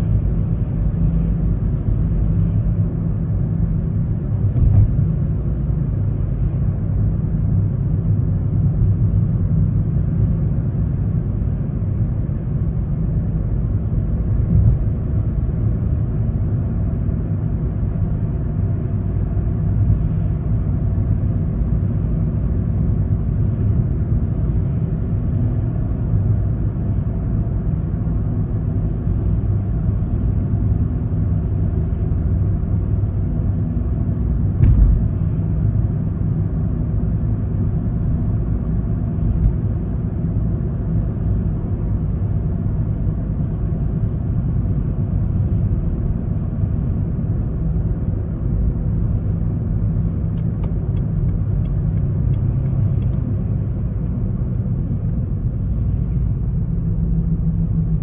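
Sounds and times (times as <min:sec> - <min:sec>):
tyre and road noise: 0:34.4 - 0:35.5
short knock: 0:34.6 - 0:35.1.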